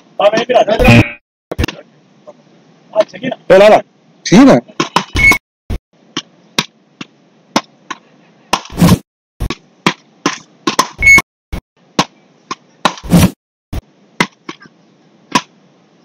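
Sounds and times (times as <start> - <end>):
short high beep: 5.2 - 5.4, 11.0 - 11.2
ball struck by hard paddles: 6.2 - 11.1, 12.0 - 13.4, 15.3 - 15.5.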